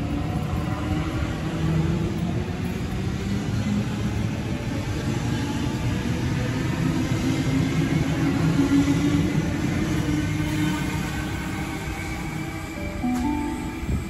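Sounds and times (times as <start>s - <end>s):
train motor hum: 11.4s - 14.0s.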